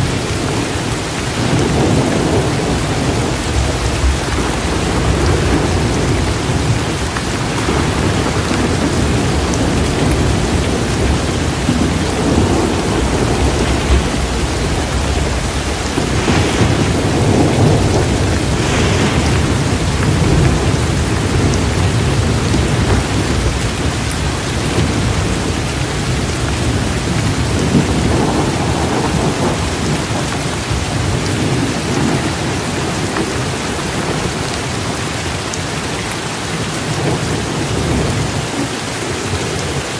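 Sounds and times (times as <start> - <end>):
steady rain: 0.0 - 39.9
thunder rumbling: 0.0 - 39.9.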